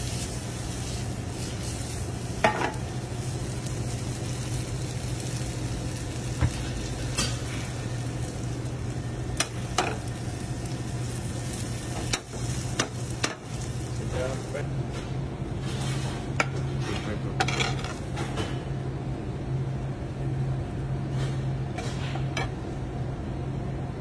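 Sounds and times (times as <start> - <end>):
food sizzling in a skillet: 0.0 - 14.6
steady low hum: 0.0 - 24.0.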